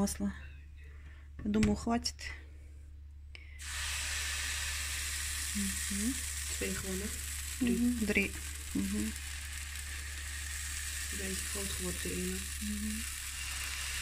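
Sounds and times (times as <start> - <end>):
batter sizzling in a frying pan: 3.6 - 14.0.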